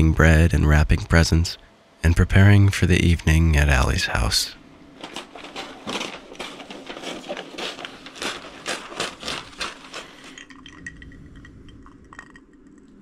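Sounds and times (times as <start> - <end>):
wrapping paper crinkling: 4.9 - 10.7.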